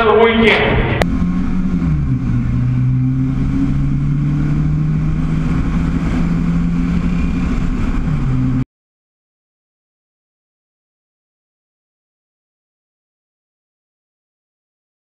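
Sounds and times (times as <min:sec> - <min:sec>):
car engine running: 0:00.0 - 0:08.6.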